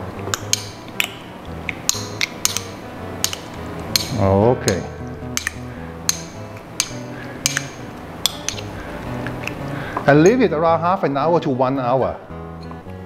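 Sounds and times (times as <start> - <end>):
soft background music: 0.0 - 13.0
metal spoon clinking in ceramic bowl: 4.7 - 8.7.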